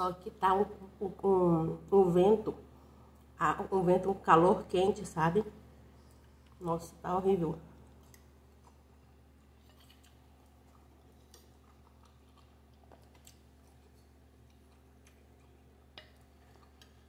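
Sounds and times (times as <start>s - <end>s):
low steady hum: 0.0s - 17.0s
closed-mouth chewing: 7.7s - 17.0s.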